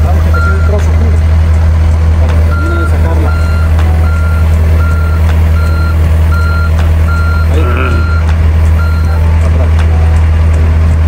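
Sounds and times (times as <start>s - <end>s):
diesel engine running: 0.0s - 11.0s
backup alarm beeping: 0.3s - 0.9s, 2.4s - 9.4s.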